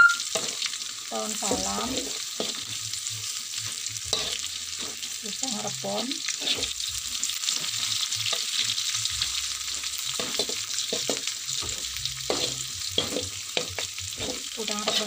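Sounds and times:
oil sizzling in a wok: 0.0 - 15.0
metal spatula scraping a pan: 0.3 - 2.9, 3.6 - 5.2, 6.2 - 15.0.

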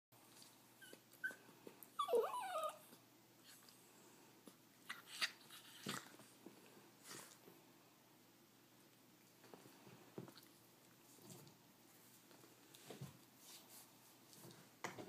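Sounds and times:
small dog whining and yelping: 0.8 - 3.6.

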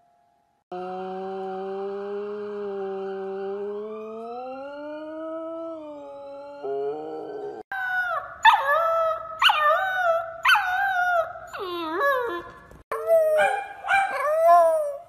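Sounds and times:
dog howling: 3.3 - 15.0
puppy howling: 4.1 - 15.0.

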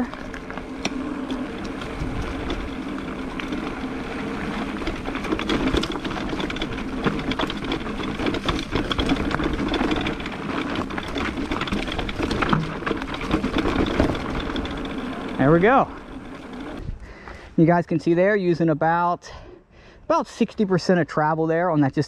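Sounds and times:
bike rattling over rocks: 0.0 - 17.0
bike drivetrain whirr: 0.0 - 17.6.

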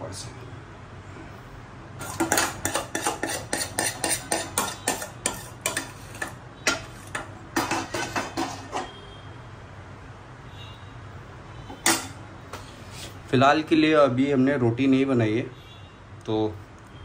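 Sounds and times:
metal ladle scraping a pan: 2.0 - 9.0, 11.7 - 12.2.

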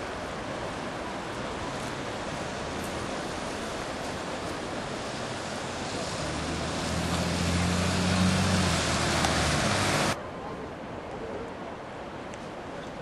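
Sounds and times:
river rapids rushing: 0.0 - 10.2
engine low hum: 2.6 - 10.2.

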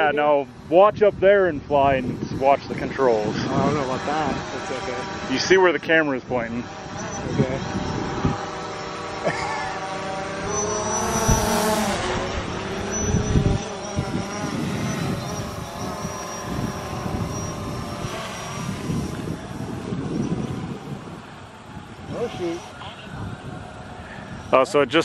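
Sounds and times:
drone propellers buzzing: 1.9 - 24.5
thin high whine: 6.8 - 21.4.

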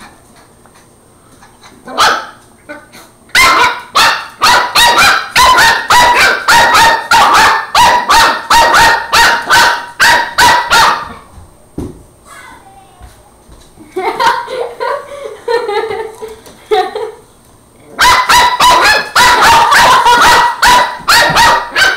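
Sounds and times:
puppy barking: 1.9 - 2.4, 3.3 - 11.2, 18.0 - 21.9.

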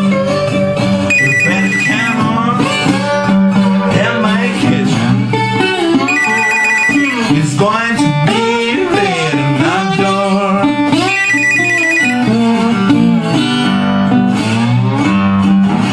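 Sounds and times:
acoustic guitar: 0.0 - 15.9
telephone ringing: 1.1 - 2.3, 6.0 - 7.4, 11.1 - 12.4.

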